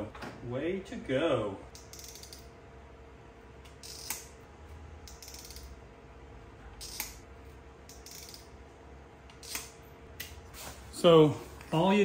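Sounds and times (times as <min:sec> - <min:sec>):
ratcheting hand crimper clicking: 0:01.8 - 0:02.4, 0:05.1 - 0:05.7, 0:07.9 - 0:08.5.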